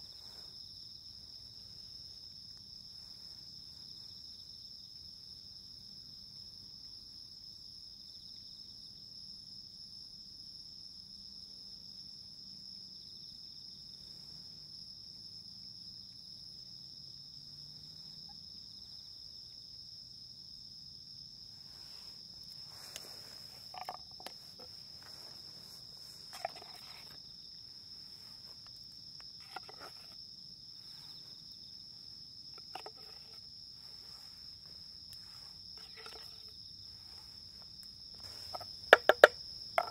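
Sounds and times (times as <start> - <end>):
insects trilling: 12.3 - 39.9.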